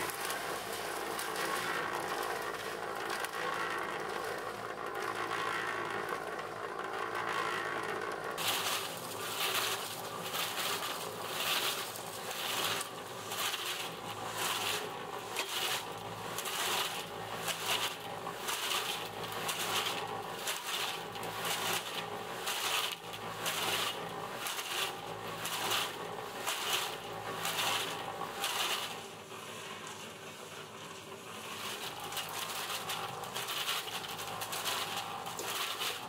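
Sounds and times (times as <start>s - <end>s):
concrete mixer motor hum: 0.0s - 36.0s
concrete tumbling in drum: 8.3s - 29.0s, 31.4s - 36.0s.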